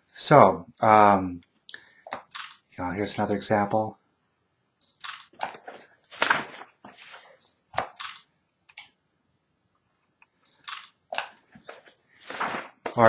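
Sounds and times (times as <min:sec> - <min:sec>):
camera shutter clicks: 0:05.0 - 0:05.3.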